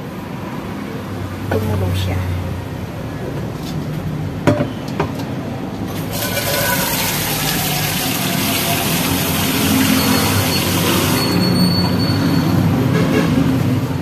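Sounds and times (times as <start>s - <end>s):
beans bubbling in a pot: 5.9s - 10.8s.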